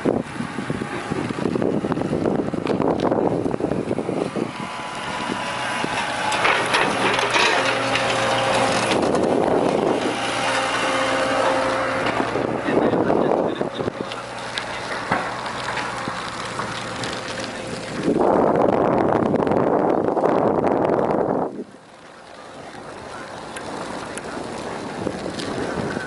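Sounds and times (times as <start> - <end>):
engine low hum: 0.0 - 26.0
wind buffeting microphone: 0.0 - 26.0
scattered knocks and clicks: 5.8 - 10.2, 14.0 - 17.5.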